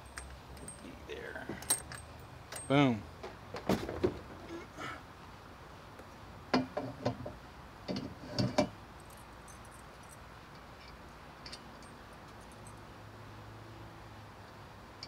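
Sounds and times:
metal clinks and knocks: 0:00.0 - 0:02.9, 0:07.9 - 0:12.8.

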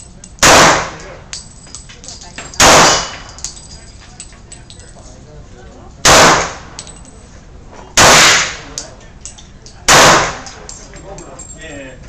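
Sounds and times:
pistol shots echoing: 0:00.4 - 0:01.1, 0:02.6 - 0:03.3, 0:06.0 - 0:06.8, 0:08.0 - 0:08.8, 0:09.9 - 0:10.6.

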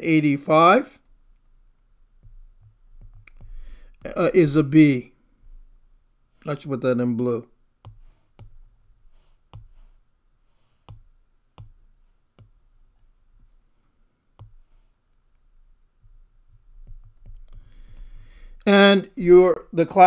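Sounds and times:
stylus tapping on tablet screen: 0:02.2 - 0:04.2, 0:07.8 - 0:10.0, 0:10.6 - 0:13.6, 0:14.3 - 0:18.6
stylus scribbling strokes: 0:07.8 - 0:15.0.

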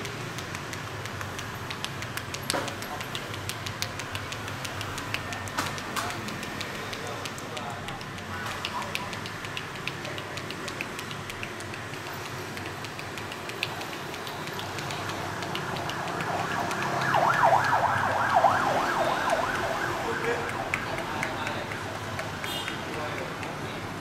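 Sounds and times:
street background: 0:00.0 - 0:24.0
siren yelp warbling: 0:15.6 - 0:22.4.

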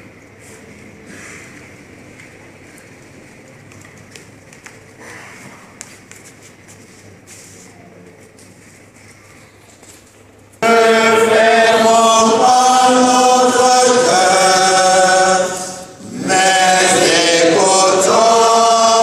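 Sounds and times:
church chant singing: 0:10.6 - 0:19.0.

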